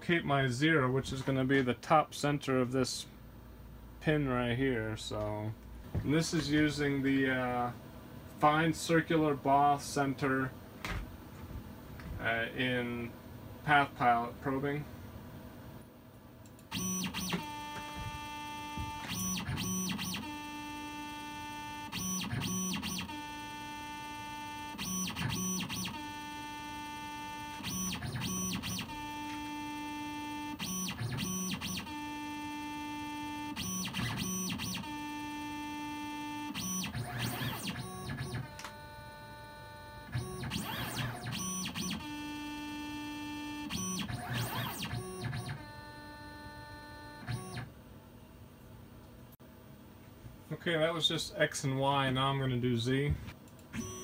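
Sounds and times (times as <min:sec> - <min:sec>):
mill motors whining: 0:16.6 - 0:47.7, 0:53.7 - 0:54.0.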